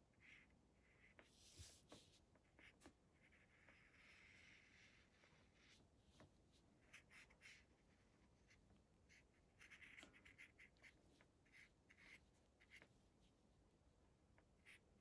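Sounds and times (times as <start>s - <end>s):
paintbrush swishing on paper: 1.2s - 2.9s.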